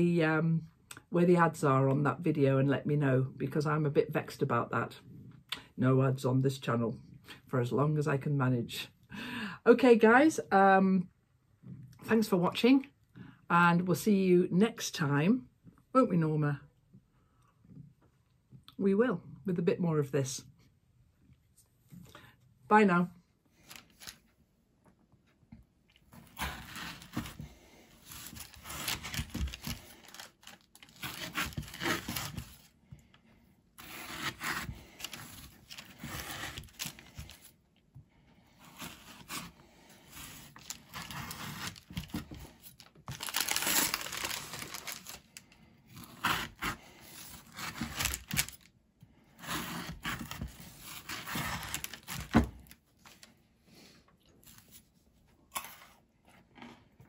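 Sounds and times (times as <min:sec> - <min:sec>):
baking parchment crinkling: 0:26.2 - 0:32.7, 0:33.8 - 0:37.5, 0:38.8 - 0:48.7, 0:49.5 - 0:53.2
knife crunching through chocolate: 0:45.9 - 0:48.6.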